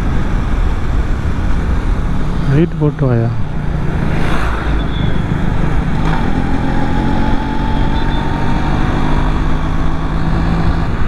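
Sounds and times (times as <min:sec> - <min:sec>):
bus running alongside: 0:00.0 - 0:11.0
road and wind noise: 0:00.0 - 0:11.0
motorcycle engine cruising: 0:03.4 - 0:11.0.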